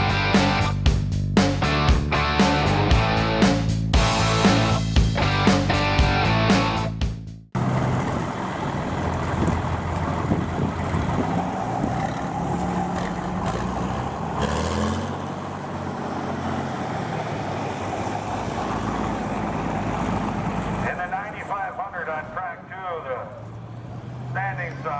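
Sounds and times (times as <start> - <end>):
rock music with electric guitar: 0.0 - 7.1
diesel pickup truck idling: 7.6 - 14.4, 15.1 - 24.9.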